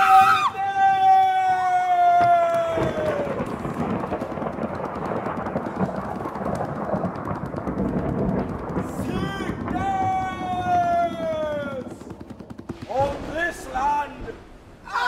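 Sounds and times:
man screaming: 0:00.0 - 0:03.4
thunder and rain: 0:02.0 - 0:14.5.

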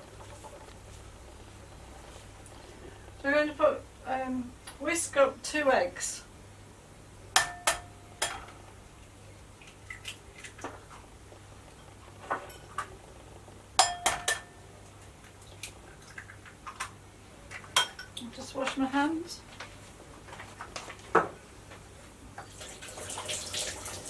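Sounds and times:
eggs tapping on glass bowl: 0:13.8 - 0:14.6.

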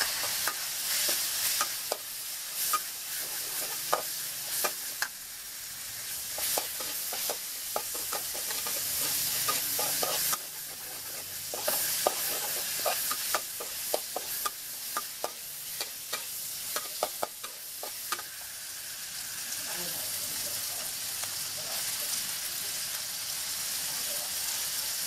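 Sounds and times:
metal spatula scraping wok: 0:00.0 - 0:18.4
shrimp sizzling in hot oil: 0:00.0 - 0:25.0.

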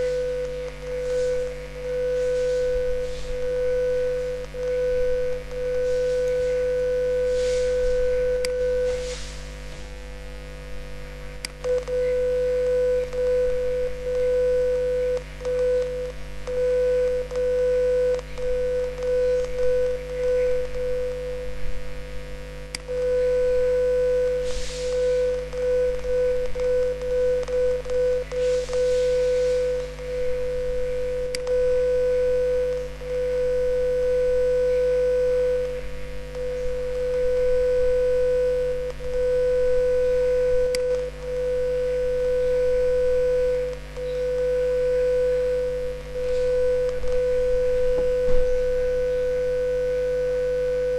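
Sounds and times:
low steady hum: 0:00.0 - 0:50.9
sine tone: 0:00.0 - 0:50.9.

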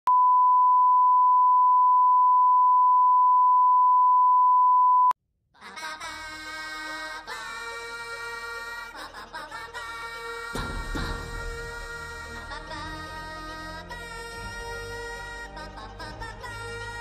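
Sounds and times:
music with sustained notes: 0:05.8 - 0:17.0.

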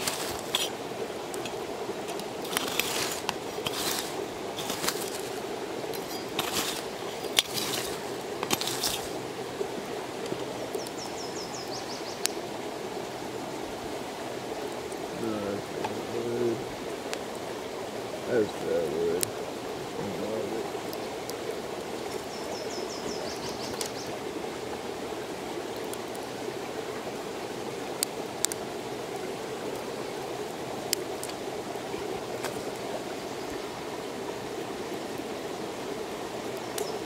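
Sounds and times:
crackles and knocks: 0:00.0 - 0:09.5, 0:30.9 - 0:32.8
steady rushing outdoor noise: 0:00.0 - 0:37.0.

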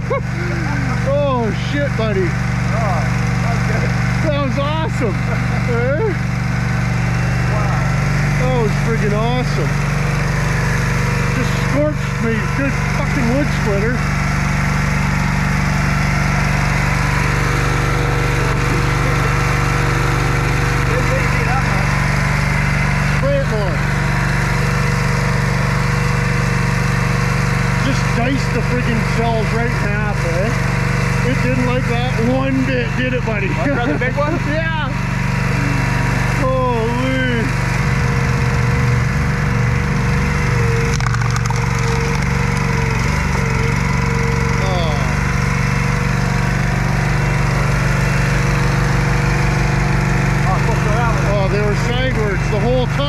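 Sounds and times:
engine running steadily: 0:00.0 - 0:53.0
wood cracking: 0:40.8 - 0:43.8.

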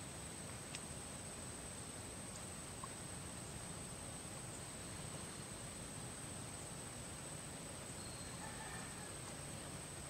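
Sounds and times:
background hiss: 0:00.0 - 0:10.0.

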